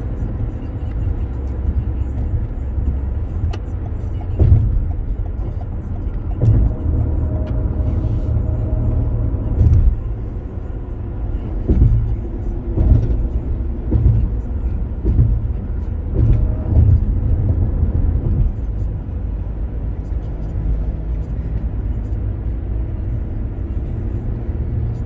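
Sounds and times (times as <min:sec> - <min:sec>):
road and engine rumble: 0:00.0 - 0:25.0
thumps from road surface: 0:04.4 - 0:05.0, 0:06.3 - 0:07.0, 0:09.4 - 0:10.2, 0:11.6 - 0:18.7.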